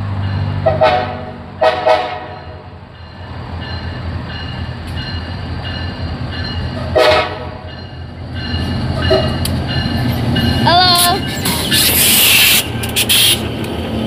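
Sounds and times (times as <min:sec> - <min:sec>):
locomotive engines rumbling: 0:00.0 - 0:14.0
train horn blast: 0:00.6 - 0:02.7, 0:06.9 - 0:07.7, 0:09.1 - 0:09.4.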